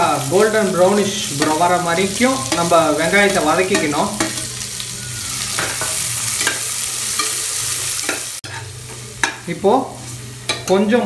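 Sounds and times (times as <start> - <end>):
onions sizzling in hot fat: 0.0 - 11.0
metal ladle scraping pan: 1.3 - 10.8.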